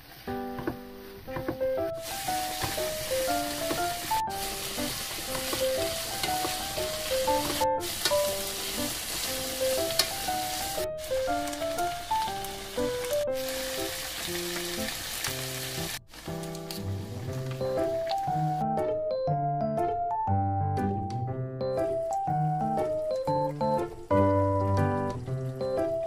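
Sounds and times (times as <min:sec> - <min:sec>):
food sizzling in a frying pan: 0:00.0 - 0:18.6
light background music: 0:00.2 - 0:26.0.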